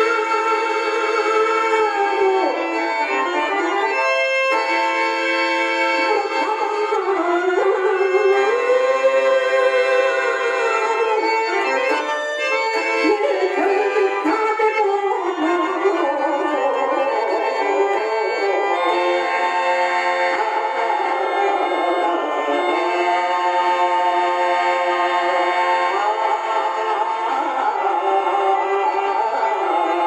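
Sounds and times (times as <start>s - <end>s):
harmonium chords: 0.0s - 30.0s.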